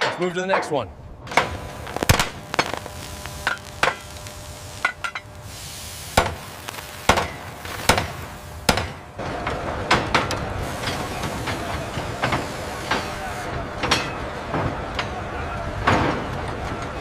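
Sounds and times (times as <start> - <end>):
din of work: 0.0 - 14.2
hammers striking metal: 8.7 - 9.1.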